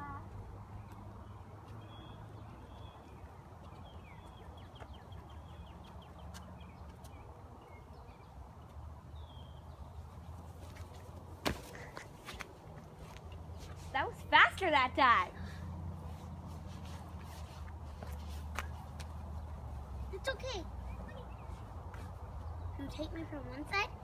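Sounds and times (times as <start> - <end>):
small songbirds chirping: 0.3 - 12.2, 15.6 - 24.0.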